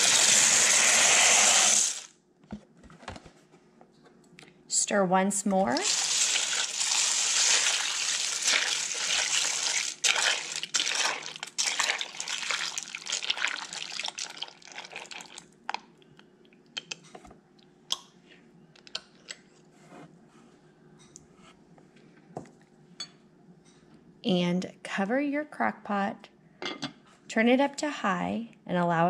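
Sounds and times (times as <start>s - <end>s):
spoon squelching and scraping: 5.8s - 15.4s.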